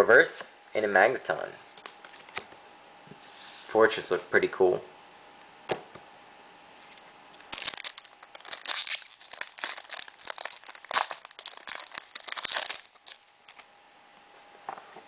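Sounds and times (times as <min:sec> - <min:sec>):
foil wrapper crackling: 0:06.9 - 0:13.7.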